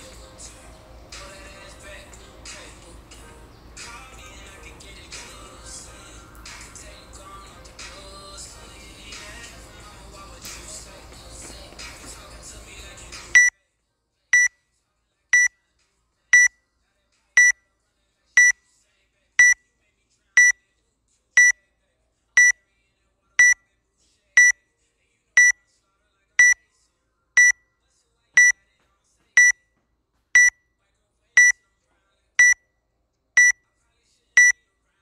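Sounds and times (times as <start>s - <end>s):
high electronic timer beeps: 23.4s - 23.6s, 26.4s - 26.6s, 27.4s - 27.6s, 29.4s - 29.6s, 30.4s - 30.6s, 32.4s - 32.6s, 33.4s - 33.6s.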